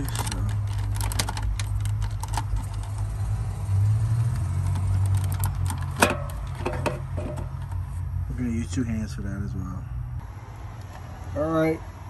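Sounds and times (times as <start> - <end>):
plastic clicks and rattles: 0.0 - 3.1, 4.6 - 7.8.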